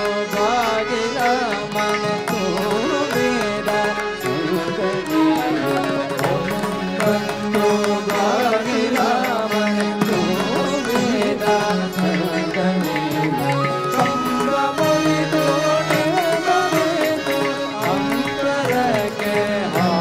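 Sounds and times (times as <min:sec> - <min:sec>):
harmonium: 0:00.0 - 0:20.0
percussion beat: 0:00.0 - 0:20.0
violins: 0:00.0 - 0:20.0
voices singing: 0:00.0 - 0:20.0
bamboo flute: 0:13.0 - 0:15.2.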